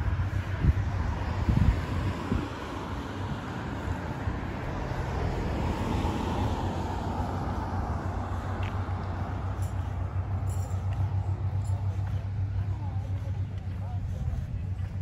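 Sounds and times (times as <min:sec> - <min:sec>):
wind buffeting microphone: 0:00.0 - 0:10.4
low rumble: 0:00.0 - 0:15.0.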